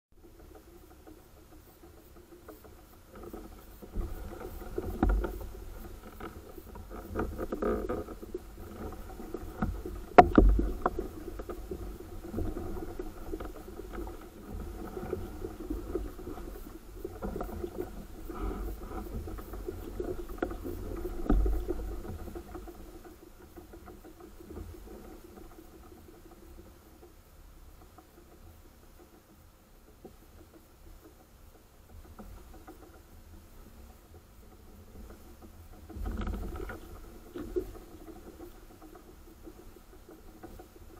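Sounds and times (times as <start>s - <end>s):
hollow knocks against boat: 0.2s - 26.1s
water lapping against kayak hull: 0.2s - 40.9s.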